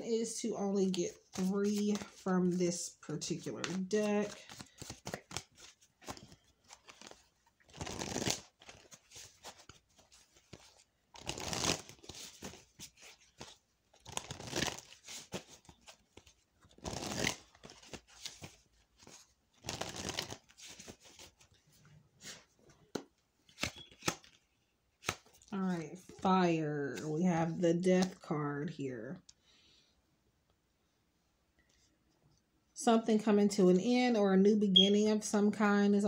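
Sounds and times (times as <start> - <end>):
cards being shuffled: 0.8 - 21.6, 22.2 - 26.2.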